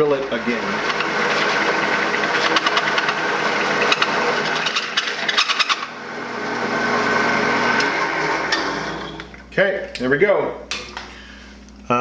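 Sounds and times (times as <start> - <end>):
drill press motor whine: 0.0 - 9.4
drill bit scraping metal: 0.2 - 6.0.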